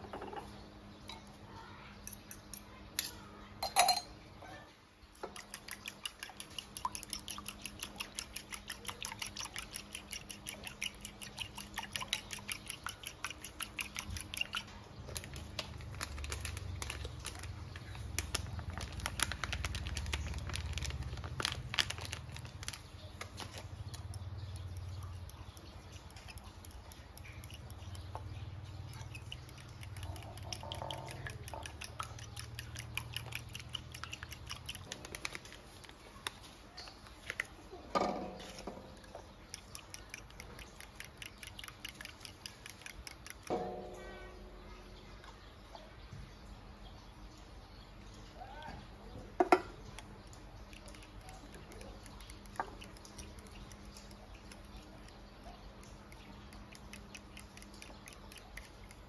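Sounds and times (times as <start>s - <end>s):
metal spoon clinking in bowl: 2.1s - 4.2s.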